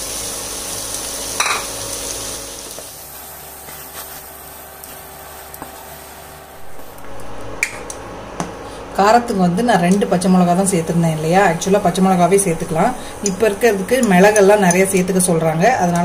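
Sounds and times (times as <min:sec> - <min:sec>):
hot oil sizzling: 0:00.0 - 0:07.0.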